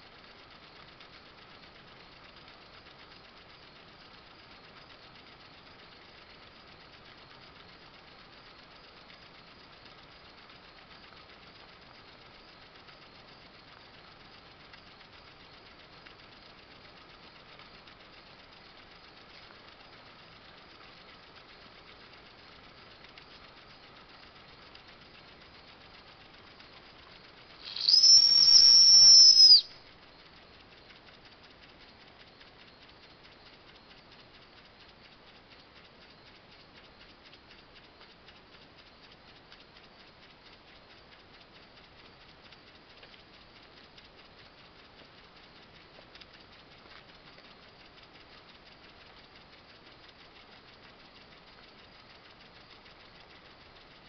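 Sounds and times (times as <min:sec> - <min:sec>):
toy steam engine running: 0:15.6 - 0:29.7
shrill steam whistle: 0:27.6 - 0:29.7.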